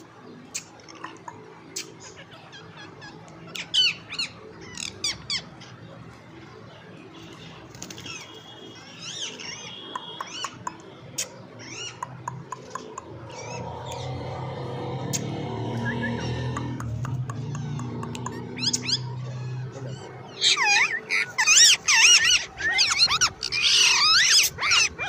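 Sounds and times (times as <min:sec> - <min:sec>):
parakeet squawking: 0:00.9 - 0:05.7, 0:08.0 - 0:14.2, 0:16.1 - 0:25.0
parakeet clicks: 0:10.0 - 0:11.3, 0:12.0 - 0:14.1, 0:16.5 - 0:19.0.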